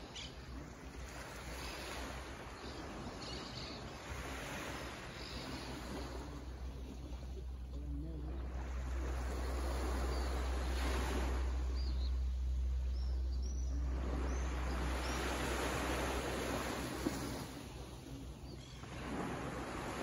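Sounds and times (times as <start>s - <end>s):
waves washing onto beach: 0.0s - 20.0s
low rumble: 6.3s - 18.4s.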